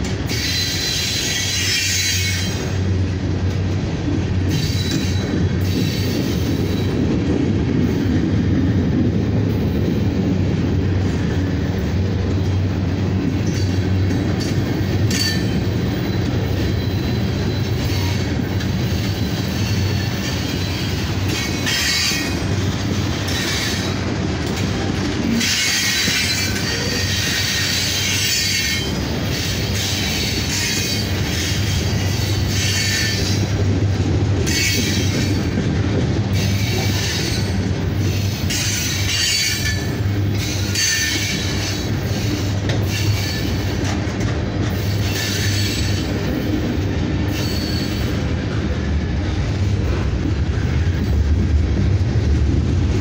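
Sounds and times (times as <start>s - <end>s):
train wheels rumbling on rails: 0.0s - 53.0s
high wheel squeal: 0.3s - 2.8s, 4.5s - 7.0s, 14.4s - 22.4s, 47.3s - 48.2s.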